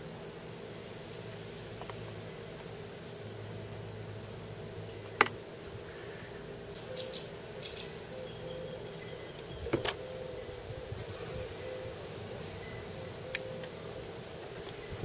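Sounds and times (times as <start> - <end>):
faint bird chirps: 6.7 - 14.1.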